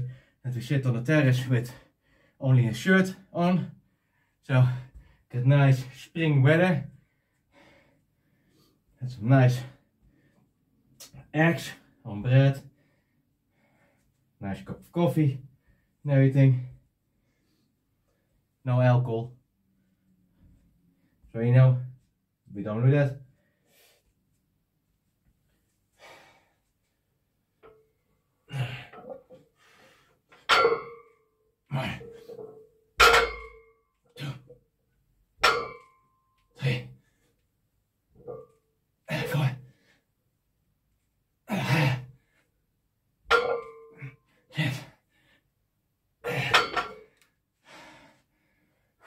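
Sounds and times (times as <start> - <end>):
person grunting exhales: 28.5 - 29.1, 41.5 - 42.1
barbell pulled and set down: 30.3 - 31.2, 46.4 - 47.1
metal clank: 30.4 - 31.1, 32.0 - 33.7
weight plates clanging on floor: 30.4 - 31.2, 31.8 - 33.7, 35.4 - 36.0, 43.3 - 44.0, 46.3 - 47.1
heavy breathing: 47.6 - 49.0.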